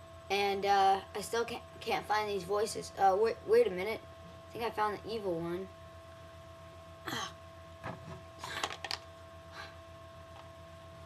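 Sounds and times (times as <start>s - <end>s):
steady electrical hum: 0.0s - 11.0s
toy handling rustles and knocks: 7.9s - 9.1s.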